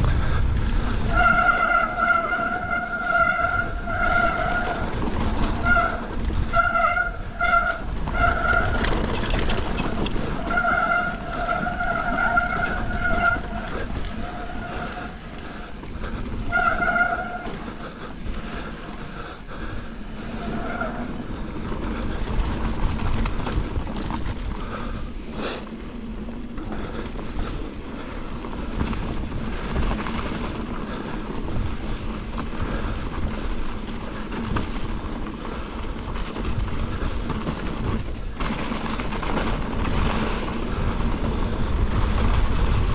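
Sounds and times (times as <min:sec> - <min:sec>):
wind on microphone: 0:00.0 - 0:25.3, 0:27.1 - 0:42.9
bike tyres rumbling on trail: 0:00.0 - 0:42.9
high squeal: 0:01.1 - 0:09.2, 0:09.8 - 0:15.2, 0:16.4 - 0:17.6.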